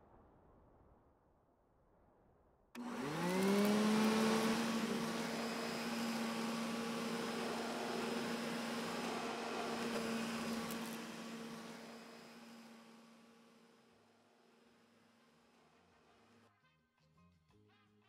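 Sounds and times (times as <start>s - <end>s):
whirring hum rising in pitch: 2.8s - 14.0s.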